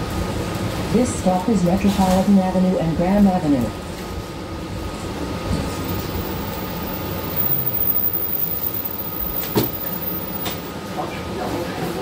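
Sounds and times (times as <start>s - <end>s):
bus engine and ventilation hum: 0.0s - 12.0s.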